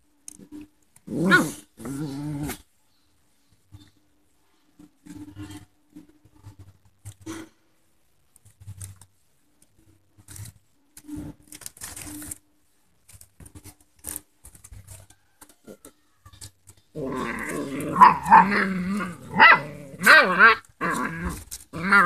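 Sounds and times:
puppies growling: 1.0s - 2.7s, 16.9s - 22.0s
puppies grunting: 17.0s - 22.0s.

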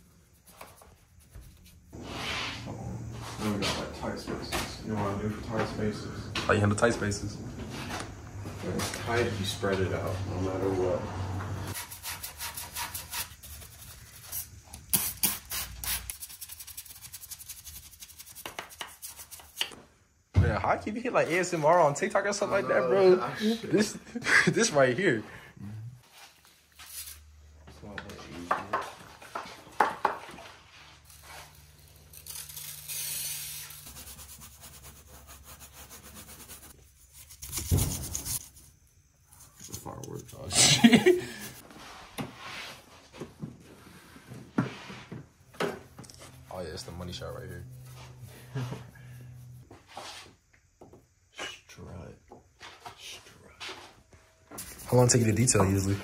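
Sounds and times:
spray bottle hissing: 14.3s - 18.6s.

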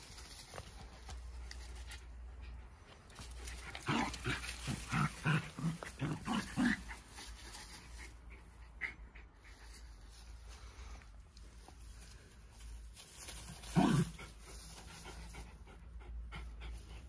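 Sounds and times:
dogs growling: 3.4s - 7.0s.

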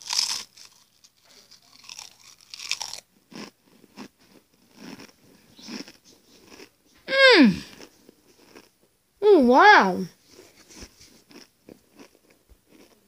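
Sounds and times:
chewing crisps: 0.0s - 6.7s, 7.7s - 8.8s, 11.0s - 13.0s
crisps crunching: 0.0s - 6.7s, 7.7s - 8.7s, 10.7s - 13.0s.

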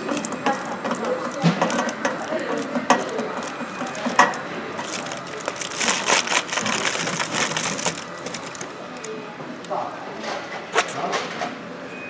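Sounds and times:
foil duct crinkling: 0.0s - 9.2s.

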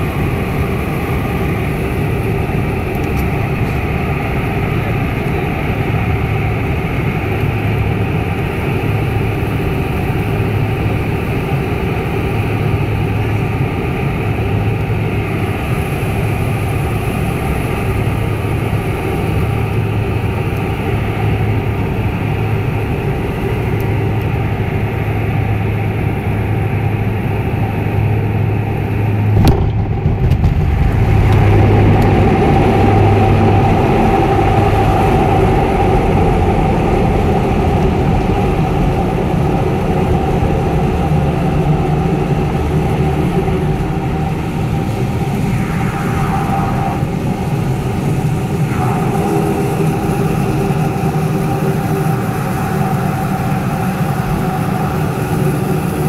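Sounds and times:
propeller engines droning: 0.0s - 56.0s
wheels touching down thud: 29.4s - 31.4s.

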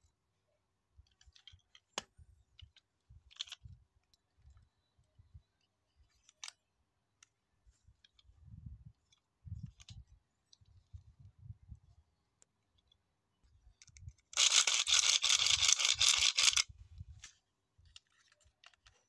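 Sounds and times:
plastic parts clicking: 1.0s - 4.2s, 6.1s - 6.6s, 13.8s - 19.0s.

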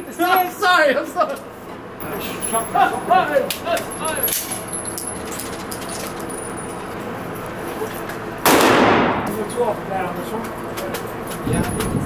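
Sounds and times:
metallic clinks of shell casings: 2.0s - 2.8s.

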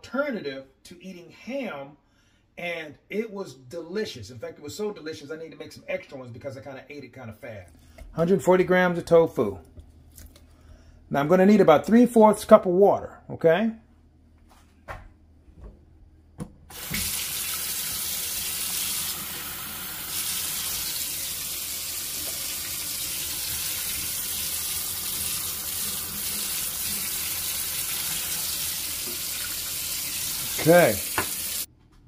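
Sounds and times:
water pouring into bowl: 16.7s - 31.7s.

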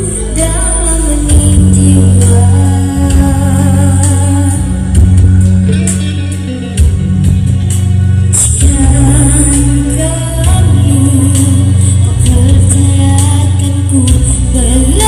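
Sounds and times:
boy singing into microphone: 0.0s - 5.2s, 8.6s - 15.0s
loud backing music: 0.0s - 15.0s.

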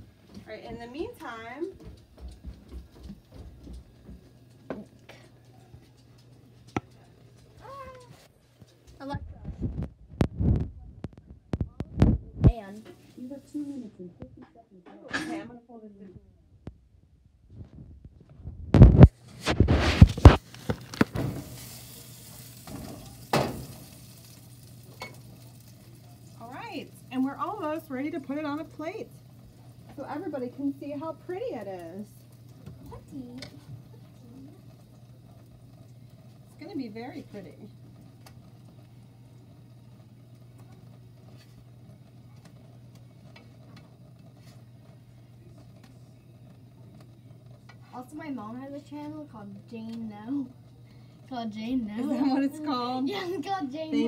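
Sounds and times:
food sizzling in a frying pan: 18.8s - 41.6s.

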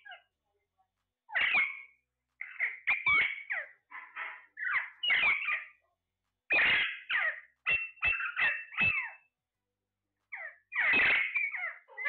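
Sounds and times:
parakeets squawking and chattering: 0.0s - 0.3s, 1.3s - 5.8s, 6.5s - 9.3s, 10.3s - 12.0s.

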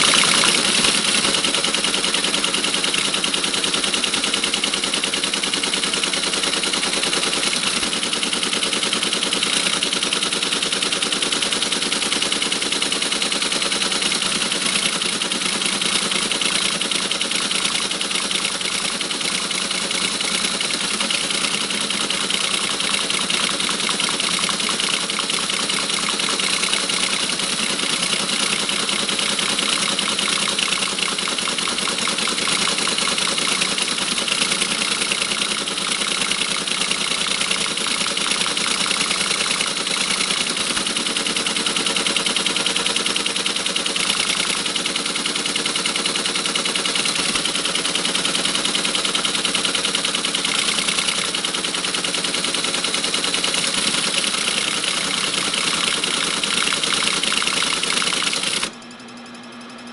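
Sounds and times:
teletype clattering: 0.0s - 58.8s.

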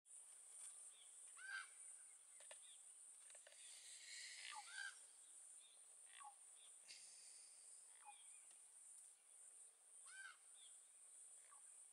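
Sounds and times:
bird chirping: 0.6s - 8.6s
steady high hiss: 1.7s - 11.9s.

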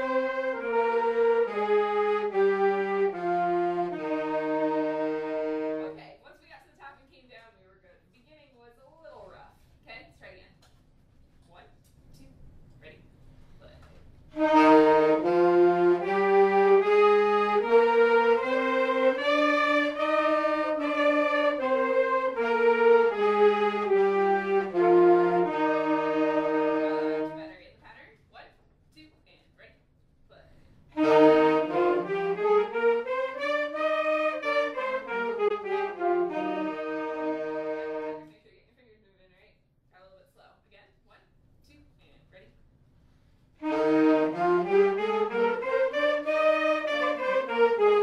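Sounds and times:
saxophones playing a scale: 0.0s - 6.1s, 14.3s - 27.6s, 31.0s - 38.4s, 43.6s - 48.0s.

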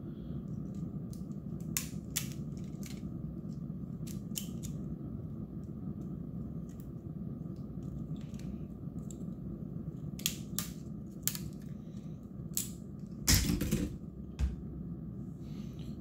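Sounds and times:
plastic clips snapping: 0.7s - 3.0s, 4.0s - 4.8s, 10.2s - 11.7s, 12.5s - 12.8s.

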